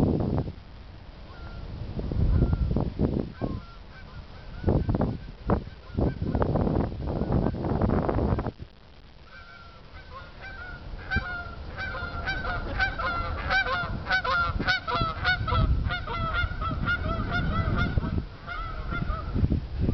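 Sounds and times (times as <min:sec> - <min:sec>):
geese honking overhead: 0:01.2 - 0:07.7, 0:09.2 - 0:19.5.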